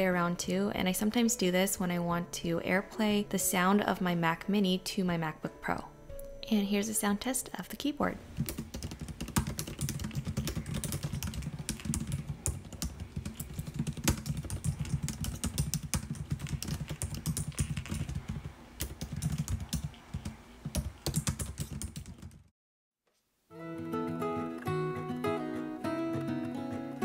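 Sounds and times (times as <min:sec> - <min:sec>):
laptop keyboard typing: 0:08.4 - 0:22.5.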